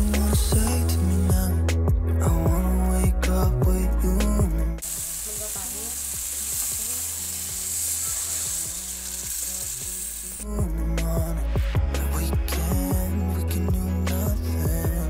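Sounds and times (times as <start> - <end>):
background music: 0.0 - 15.0
water pouring into a pan: 4.8 - 10.3
food sizzling in a pan: 4.8 - 10.5.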